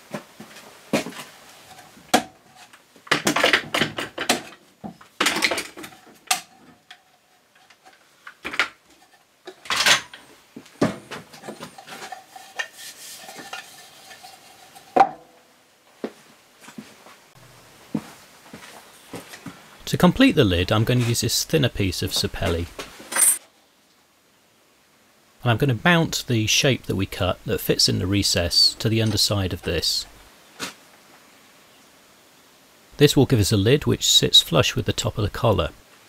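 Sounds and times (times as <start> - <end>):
clamps clicking and clattering: 9.5 - 10.3.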